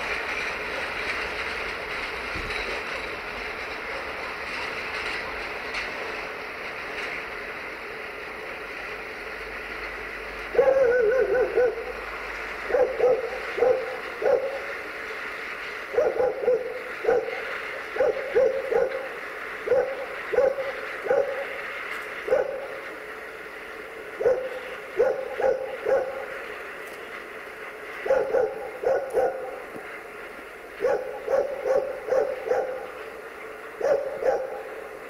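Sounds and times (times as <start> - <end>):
dog barking: 10.6 - 11.9, 12.7 - 14.6, 15.9 - 17.4, 18.0 - 19.0, 19.6 - 21.4, 22.2 - 22.6, 24.2 - 26.2, 28.0 - 29.6, 30.8 - 32.8, 33.8 - 34.7.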